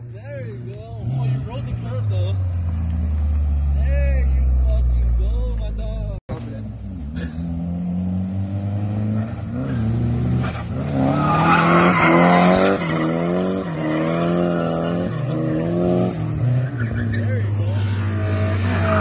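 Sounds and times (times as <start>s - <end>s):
car engine revving: 0.4s - 19.0s
tyres squealing: 10.4s - 18.0s.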